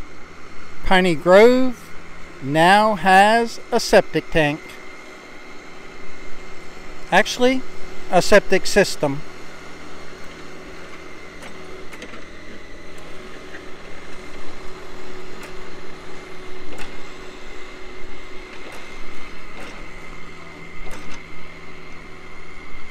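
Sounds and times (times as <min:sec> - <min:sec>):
diesel engine running: 0:00.0 - 0:22.9
steady high whine: 0:00.0 - 0:22.9
clanks and rattles from tracks: 0:16.7 - 0:17.1, 0:18.5 - 0:20.0, 0:20.8 - 0:21.3.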